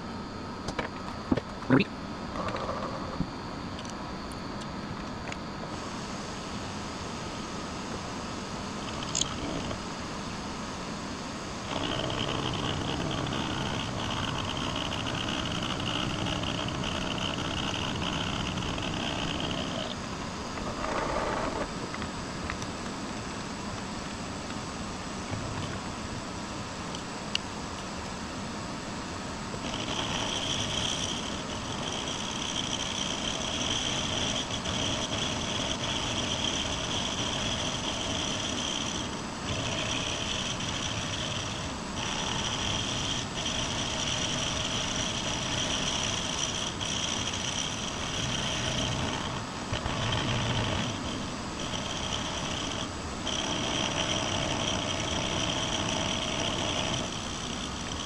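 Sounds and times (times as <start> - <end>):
milling machine cutting metal: 8.7 - 10.1, 11.5 - 21.8, 29.5 - 58.0.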